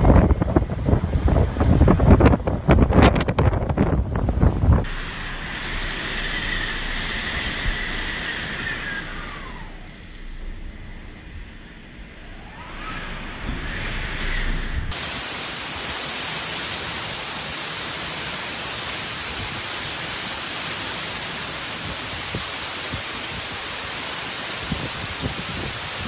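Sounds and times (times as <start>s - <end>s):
wind buffeting microphone: 0.0s - 15.3s, 24.6s - 26.0s
heavy rain hiss: 3.8s - 26.0s.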